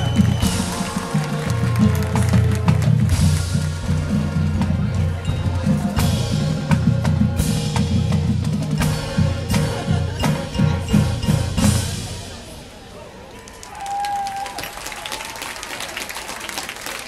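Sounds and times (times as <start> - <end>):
marching band playing: 0.0 - 13.0.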